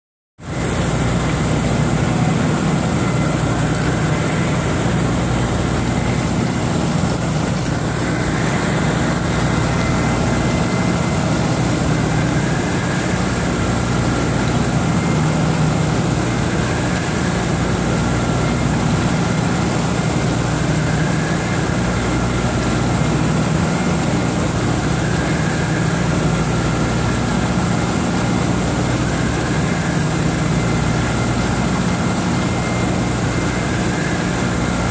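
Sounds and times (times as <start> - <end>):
low machine hum: 0.4 - 34.9.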